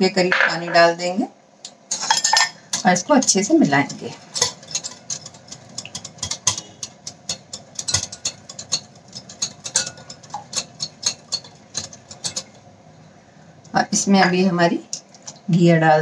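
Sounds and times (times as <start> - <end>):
whisk clicking against glass bowl: 2.2 - 12.6.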